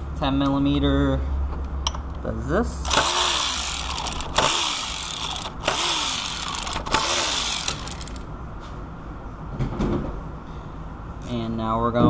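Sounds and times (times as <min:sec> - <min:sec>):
power ratchet spinning: 0:02.8 - 0:08.3.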